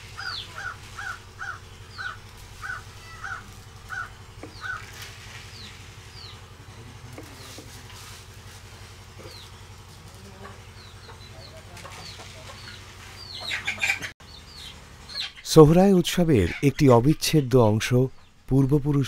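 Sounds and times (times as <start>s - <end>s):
steady low hum: 0.0s - 13.5s
chickens clucking: 0.0s - 19.0s.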